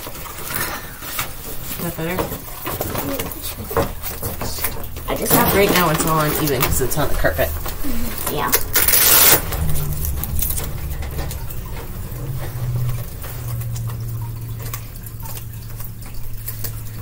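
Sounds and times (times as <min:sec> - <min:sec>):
low hum: 0:03.6 - 0:17.0.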